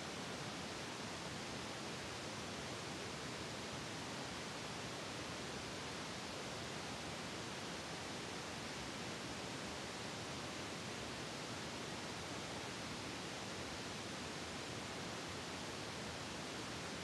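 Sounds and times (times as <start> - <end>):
static hiss: 0.0 - 17.0.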